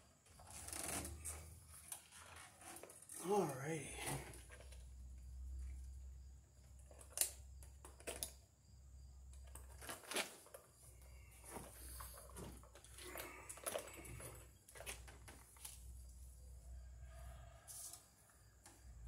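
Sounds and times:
plastic scrapes and crinkles: 0.4s - 3.2s.

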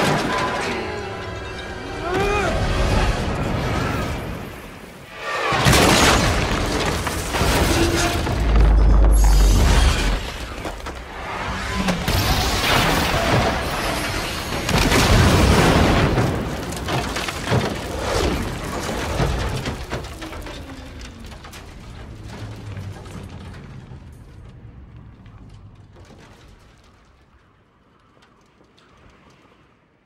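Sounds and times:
crashing metal and debris: 0.0s - 29.0s
train crash booms: 5.2s - 23.7s.

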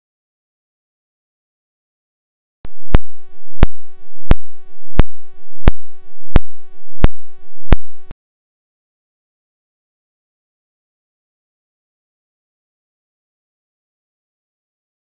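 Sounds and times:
pulsing electronic tone: 2.7s - 8.1s
sharp clicks: 2.9s - 8.1s.

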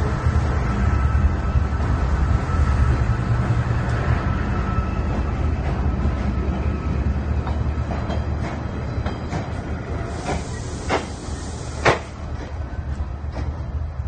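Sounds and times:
locomotive engine rumble and whine: 0.0s - 14.0s
train wheels clicking over rail joints: 5.0s - 14.0s.

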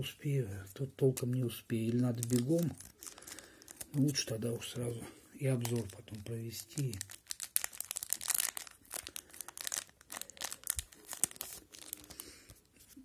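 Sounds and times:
wrapper tearing and crinkling: 1.8s - 4.2s, 5.5s - 12.9s.

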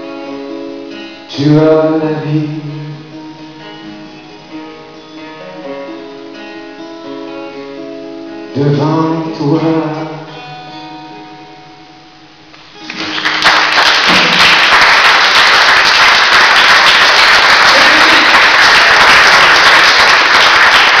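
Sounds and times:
strummed acoustic guitar: 0.0s - 14.6s
man singing: 1.3s - 3.2s, 8.5s - 10.5s
audience applause: 12.8s - 21.0s.

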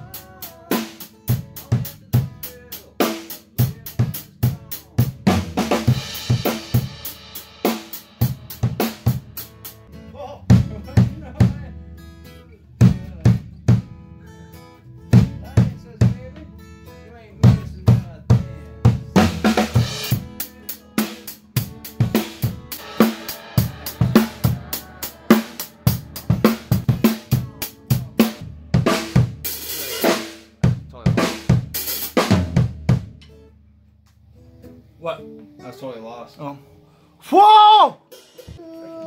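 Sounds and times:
drum kit beat: 0.0s - 14.1s, 15.1s - 16.5s, 17.4s - 33.4s, 38.0s - 38.7s
bass guitar: 8.2s - 35.2s
live country band playing: 18.3s - 30.3s
cymbal crashes: 22.0s - 27.6s.

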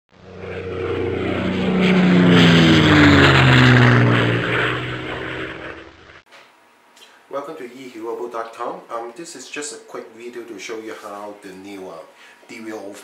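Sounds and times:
propeller airplane engine drone: 0.1s - 6.3s.

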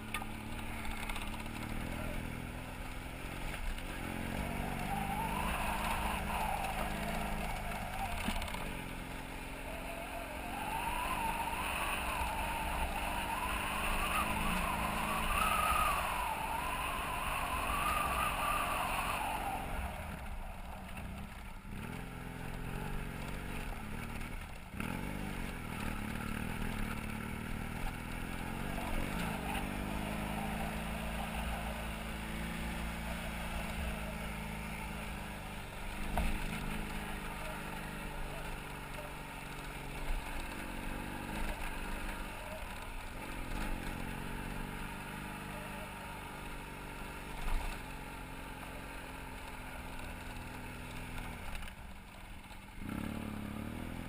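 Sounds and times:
motorcycle engine running: 0.0s - 54.0s
wavering high whine: 3.7s - 21.4s.

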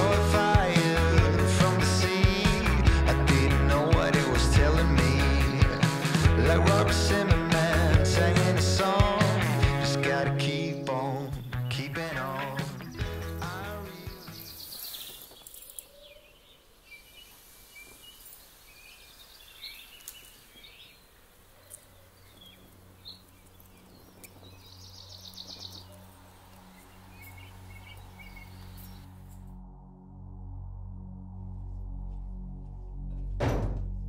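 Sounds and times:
small birds chirping: 10.8s - 29.3s
bird trill: 11.3s - 29.1s
faint clicks: 20.0s - 20.4s.

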